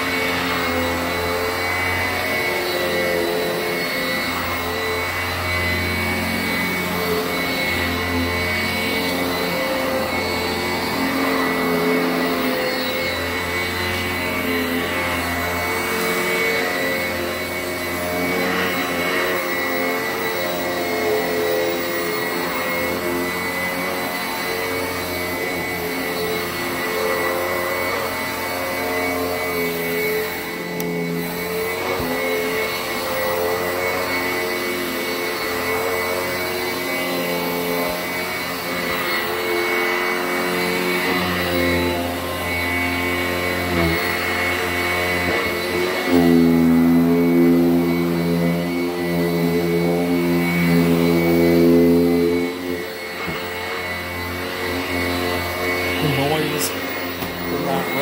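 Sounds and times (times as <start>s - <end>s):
vacuum cleaner running on carpet: 0.0s - 58.0s.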